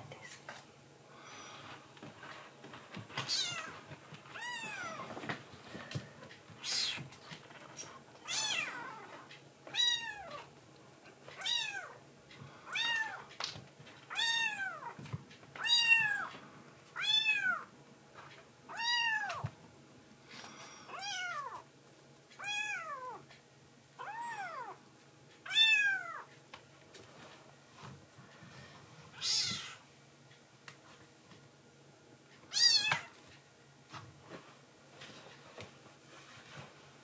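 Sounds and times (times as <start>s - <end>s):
kitten meowing: 6.6s - 7.0s, 18.7s - 19.4s, 29.2s - 29.8s, 32.5s - 33.1s.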